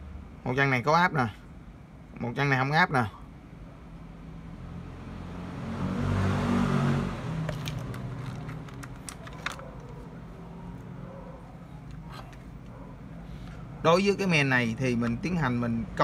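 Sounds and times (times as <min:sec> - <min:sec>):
vehicle engine passing by: 0:04.4 - 0:11.1.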